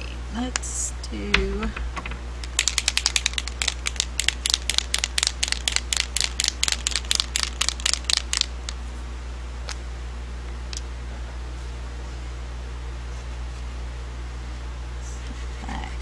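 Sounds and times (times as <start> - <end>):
paint marker ball rattling: 1.3 - 8.5.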